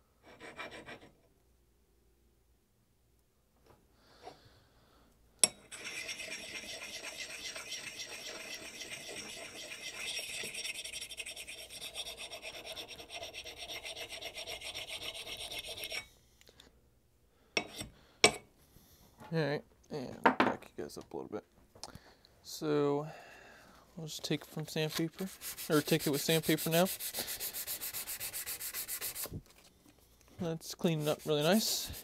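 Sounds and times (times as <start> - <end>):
sharpening stone grinding steel: 5.4 - 16.1, 25.3 - 29.3.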